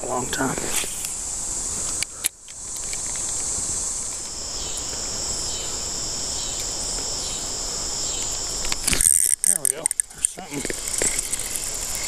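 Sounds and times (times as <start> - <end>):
high-pitched insect buzzing: 0.0 - 12.0
lower insect buzzing: 0.0 - 12.0.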